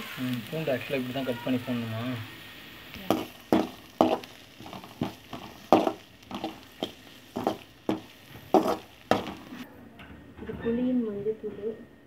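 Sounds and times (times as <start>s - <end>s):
metal ladle scraping a pan: 3.1s - 9.6s.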